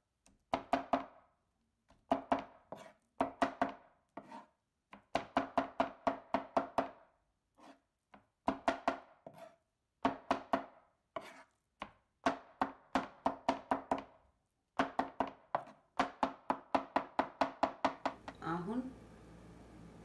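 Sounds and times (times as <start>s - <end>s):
knife chopping on cutting board: 0.5s - 1.1s, 2.0s - 7.0s, 7.6s - 14.1s, 14.8s - 18.3s.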